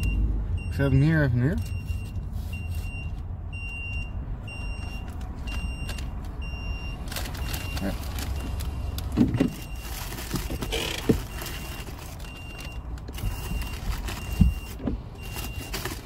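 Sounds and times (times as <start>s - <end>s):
car warning chime beeping: 0.0s - 15.9s
low hum of car: 0.0s - 16.0s
paper bag rustling: 7.0s - 16.0s.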